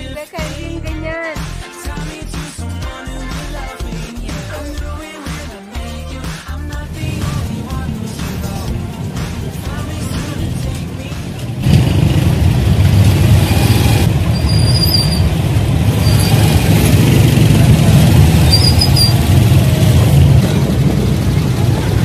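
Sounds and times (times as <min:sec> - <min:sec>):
vehicle engine and road rumble: 0:05.8 - 0:22.0
brief high squeaks: 0:13.5 - 0:15.3, 0:18.4 - 0:19.2.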